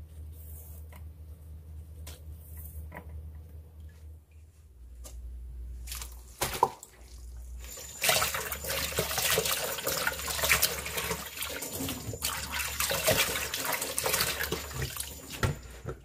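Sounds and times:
hands rinsing leaves splashing: 5.8s - 15.7s
tap water running into sink: 7.6s - 15.7s.

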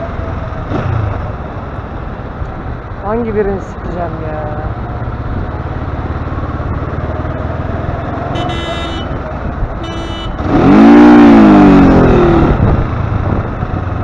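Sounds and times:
city traffic: 0.0s - 14.0s
motorcycle engine running: 4.4s - 14.0s
vehicle horn beeps: 8.3s - 9.2s, 9.8s - 10.5s.

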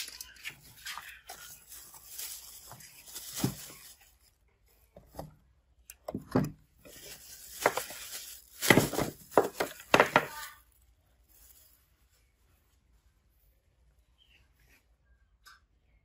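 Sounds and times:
plastic bag crinkling: 0.0s - 4.4s, 6.8s - 12.2s
plastic parts clunking on wood: 6.0s - 6.6s, 8.6s - 10.4s.

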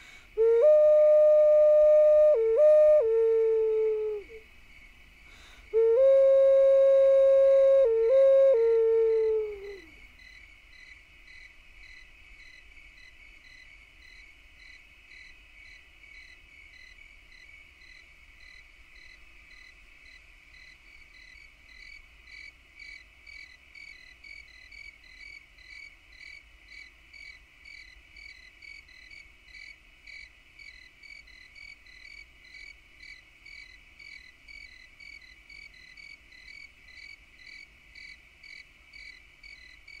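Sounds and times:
insects droning: 0.0s - 40.0s
rhythmic insect chirp: 0.0s - 40.0s.

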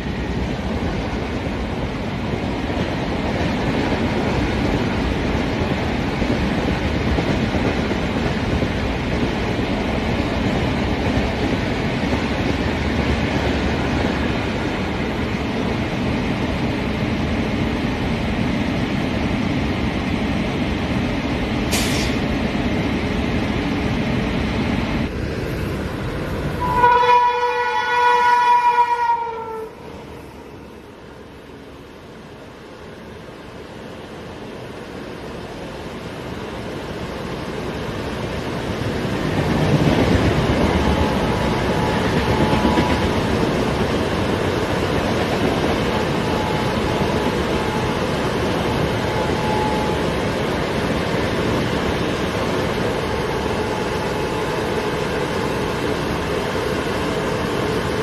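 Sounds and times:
train wheels rumbling on rail: 0.0s - 58.0s
locomotive horn blast: 26.6s - 29.8s.

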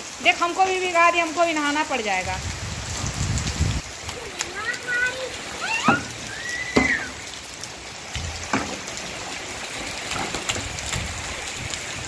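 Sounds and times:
rain on concrete roof: 0.0s - 12.0s
bare feet splashing: 3.9s - 12.0s.

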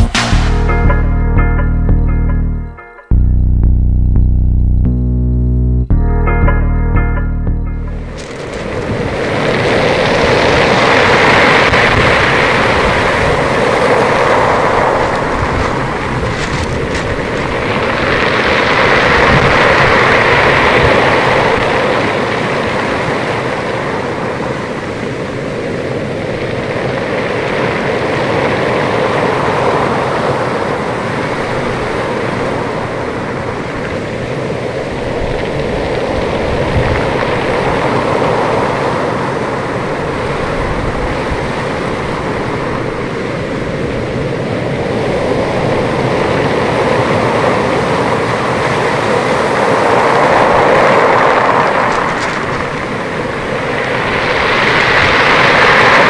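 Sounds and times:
surf breaking on pebble beach: 8.2s - 24.8s, 45.3s - 56.0s.

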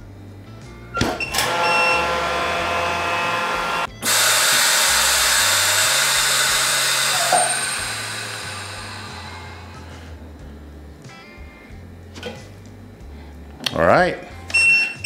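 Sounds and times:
vacuum pump humming: 0.9s - 13.1s
hissing air rush: 2.3s - 10.8s.

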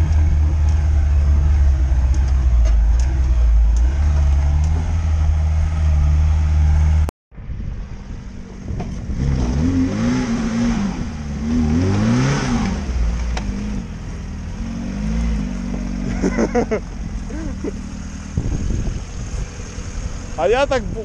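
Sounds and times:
car engine revving: 0.0s - 7.1s, 8.1s - 21.0s.

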